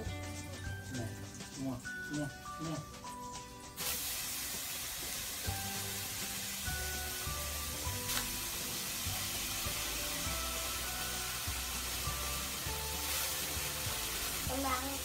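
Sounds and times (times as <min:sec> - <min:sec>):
background music: 0:00.0 - 0:15.0
vegetables sizzling in a frying pan: 0:03.8 - 0:15.0.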